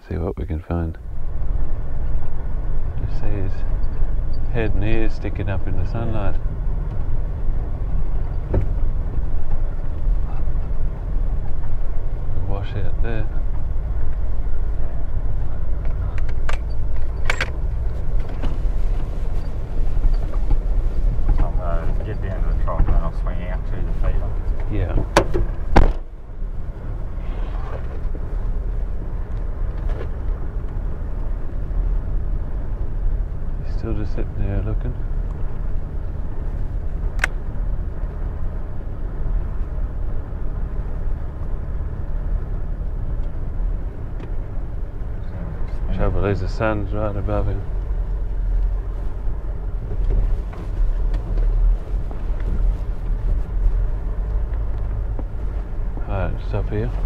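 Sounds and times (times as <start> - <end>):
engine and tyre rumble: 0.0 - 57.0
sharp click: 37.1 - 37.4.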